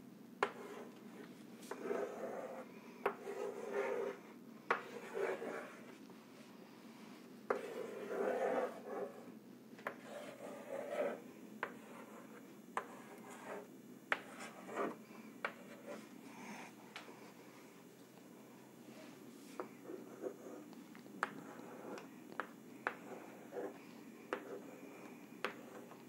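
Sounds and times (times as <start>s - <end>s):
chalk tapping on chalkboard: 0.4s - 0.8s, 3.0s - 4.1s, 4.7s - 5.7s, 7.5s - 8.8s, 9.8s - 15.8s, 21.2s - 24.6s, 25.4s - 26.0s
chalk scratching on chalkboard: 0.4s - 0.9s, 1.7s - 6.0s, 7.5s - 16.0s, 19.5s - 24.8s, 25.4s - 26.0s.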